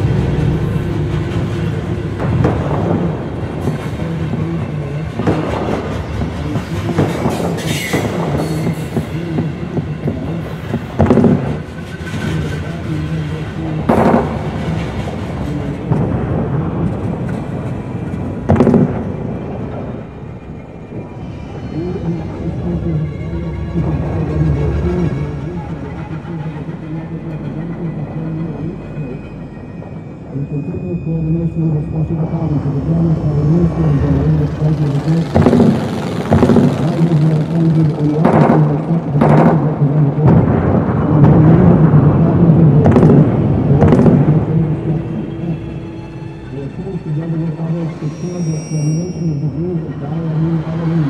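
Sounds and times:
low wavering drone: 0.0 - 51.0
railway wagons rattling: 0.0 - 51.0.

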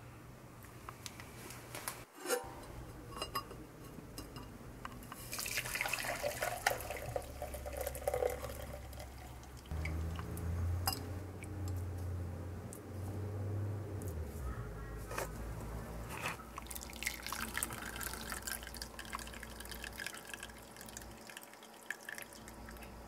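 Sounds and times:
coffee pouring and splashing: 5.2 - 10.3, 16.4 - 23.0.

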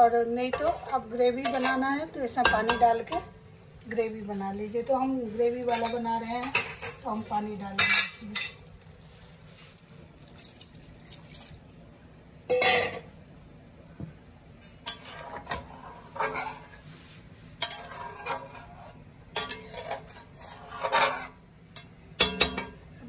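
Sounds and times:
metal spatula scraping a pan: 0.0 - 3.3, 4.2 - 8.6, 14.7 - 21.4
water pouring into a pan: 10.2 - 12.1.

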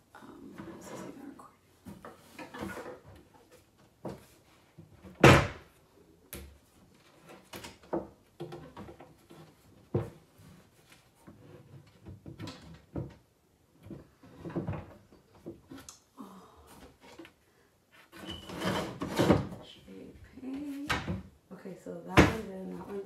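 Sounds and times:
wooden knocks and clunks: 7.2 - 10.3, 11.2 - 15.8.

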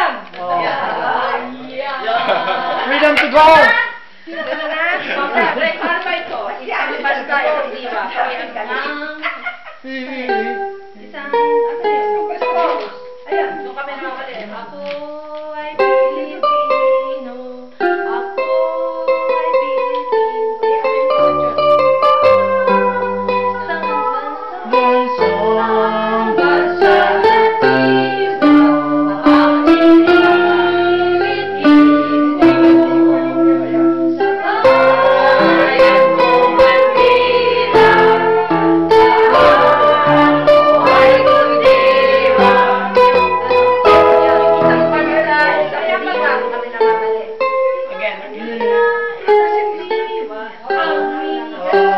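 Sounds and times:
electronic keyboard playing: 10.2 - 14.0, 15.8 - 51.9
women singing: 13.4 - 19.9, 21.8 - 47.4, 48.0 - 51.9.

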